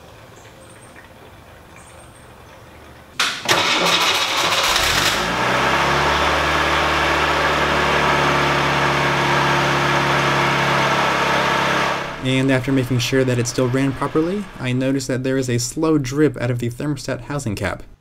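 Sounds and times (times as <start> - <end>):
car engine cranking and idling: 3.2 - 15.8.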